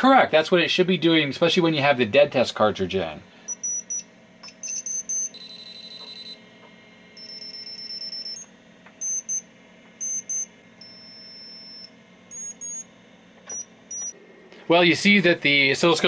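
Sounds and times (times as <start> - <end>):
logic probe beeping: 3.4 - 14.2.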